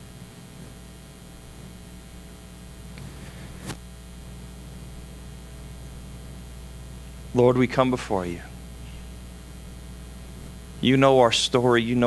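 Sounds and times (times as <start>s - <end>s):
light hiss: 0.0s - 10.9s
low electrical hum: 0.0s - 12.0s.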